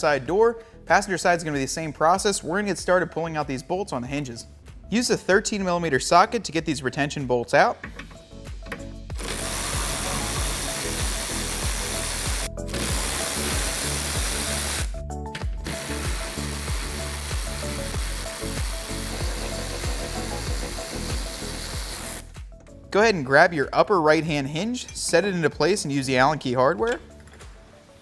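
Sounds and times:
cordless electric ratchet running: 9.1s - 15.0s, 15.6s - 22.3s.

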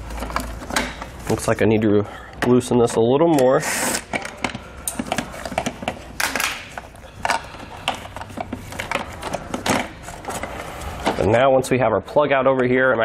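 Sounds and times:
plastic clicks and rustling: 2.4s - 11.3s
plastic scrape: 3.5s - 11.3s.

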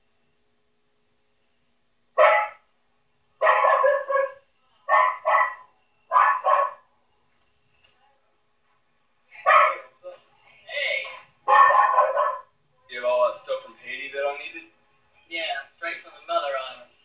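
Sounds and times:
dog barking: 2.2s - 2.6s, 3.4s - 6.9s, 9.4s - 9.9s, 11.4s - 12.5s.

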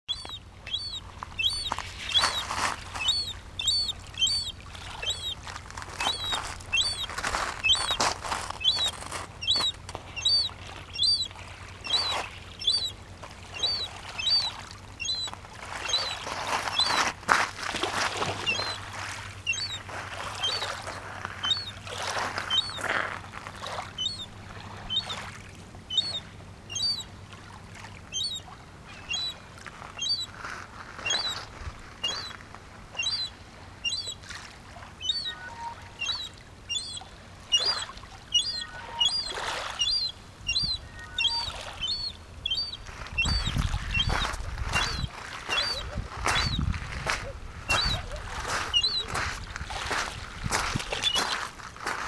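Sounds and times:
gull piping call: 0.1s - 17.0s, 18.2s - 18.9s, 19.5s - 21.8s, 22.4s - 22.9s, 23.9s - 25.3s, 25.9s - 27.1s, 28.1s - 29.4s, 30.0s - 30.3s, 31.0s - 32.4s, 33.0s - 34.2s, 35.0s - 49.3s.

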